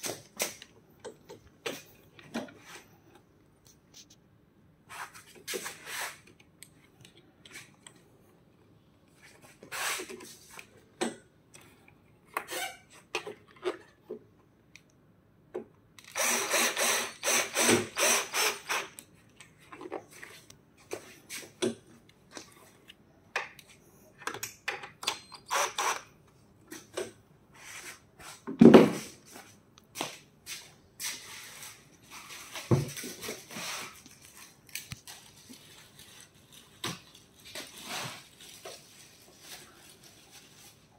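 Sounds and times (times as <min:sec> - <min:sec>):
cordless drill driving screws: 0:16.0 - 0:18.9, 0:25.5 - 0:26.0.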